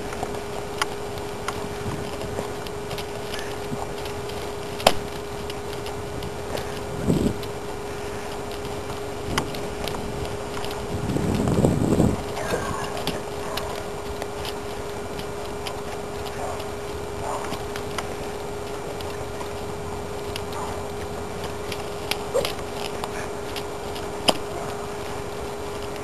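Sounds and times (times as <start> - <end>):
horse hoofbeats on dirt: 0.0 - 26.0
steady low hum: 0.0 - 26.0.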